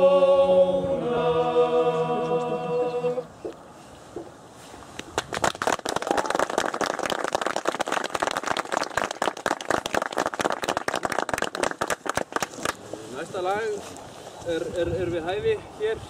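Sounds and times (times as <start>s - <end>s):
audience applauding: 5.2s - 12.8s.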